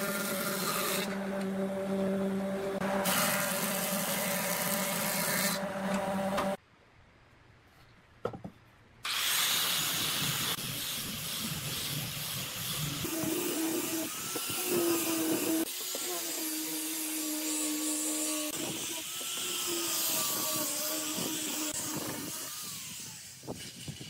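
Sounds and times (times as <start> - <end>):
angle grinder sanding wood: 0.0 - 6.6, 9.1 - 24.0
planer motor humming: 0.0 - 6.6
hiss of planing wood: 2.9 - 5.7, 9.1 - 24.0.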